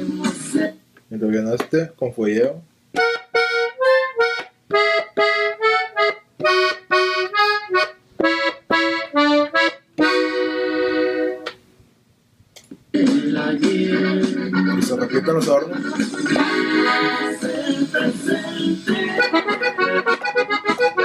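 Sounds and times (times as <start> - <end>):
button accordion playing: 3.0 - 11.6, 13.0 - 21.0.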